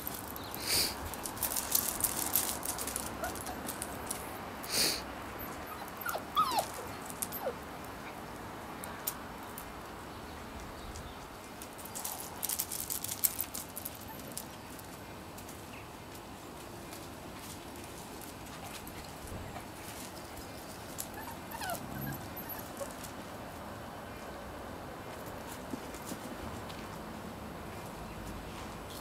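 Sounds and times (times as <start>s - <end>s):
puppies whimpering: 3.2s - 4.0s, 5.4s - 7.6s, 21.0s - 23.1s.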